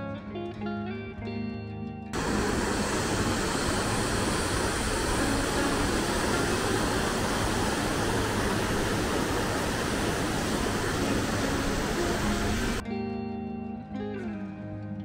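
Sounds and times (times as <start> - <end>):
river water rushing over rocks: 2.2 - 12.8.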